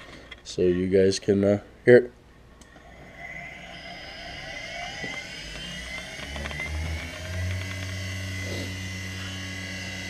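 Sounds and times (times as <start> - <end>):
electric motor whine: 2.7 - 10.0.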